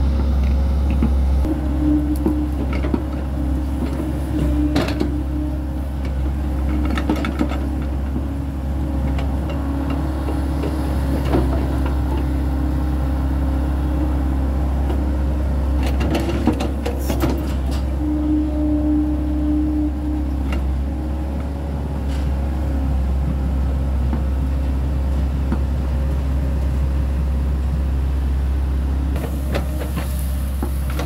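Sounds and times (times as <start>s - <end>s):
excavator diesel engine: 0.0s - 31.0s
hydraulic whining tone: 1.5s - 7.4s, 11.6s - 22.8s.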